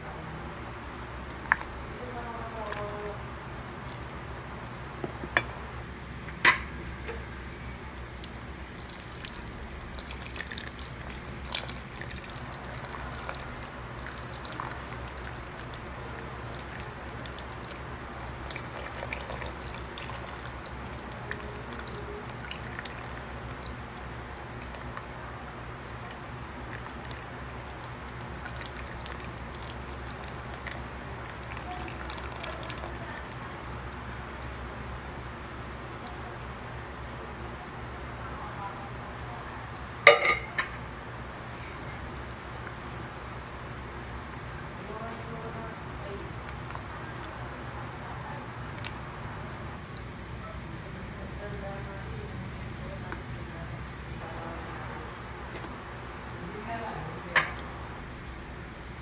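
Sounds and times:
liquid trickling into pot: 0.6s - 4.2s, 7.8s - 35.2s, 46.3s - 50.1s.

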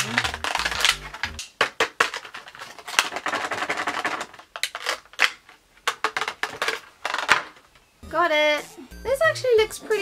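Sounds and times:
plastic packaging crinkling: 0.0s - 7.7s.

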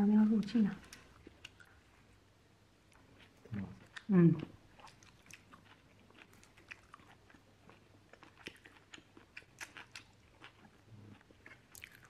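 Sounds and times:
crunchy chewing: 2.9s - 12.0s.

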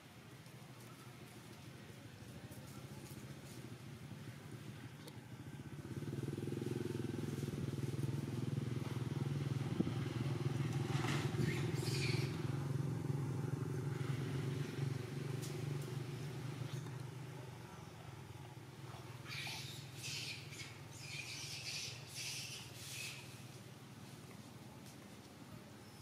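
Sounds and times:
motor engine running: 2.7s - 19.0s.

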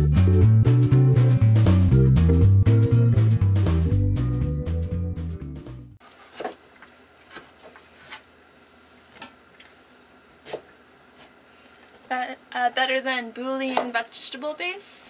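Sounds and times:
music track: 0.0s - 6.0s.

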